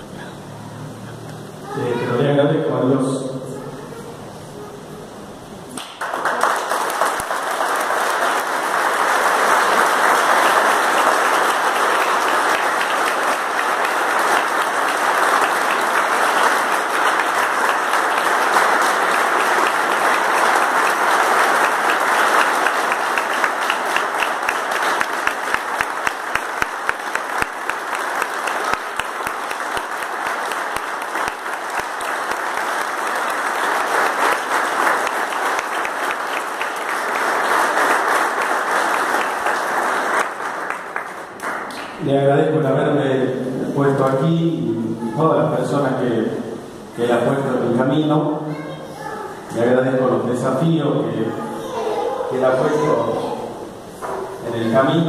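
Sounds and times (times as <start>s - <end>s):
crowd applauding: 5.7s - 42.1s.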